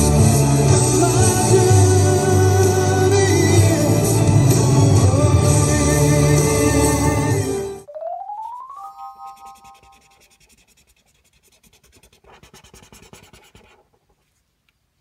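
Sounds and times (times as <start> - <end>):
loud stage music: 0.0 - 7.8
rising tone and chord: 4.6 - 10.1
highlighter scratching on paper: 9.2 - 13.9.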